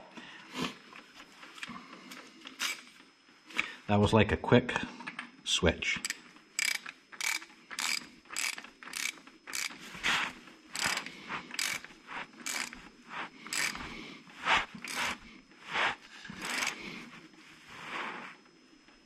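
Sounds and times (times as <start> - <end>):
socket ratchet clicking: 6.0 - 9.8, 10.8 - 12.8, 13.5 - 13.8, 14.9 - 15.2, 16.4 - 16.8.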